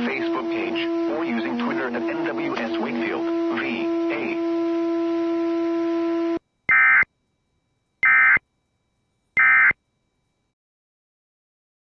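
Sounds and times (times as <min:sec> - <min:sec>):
steady low hum: 0:00.0 - 0:10.6
digital data tone bursts: 0:06.7 - 0:07.1, 0:08.0 - 0:08.4, 0:09.4 - 0:09.8.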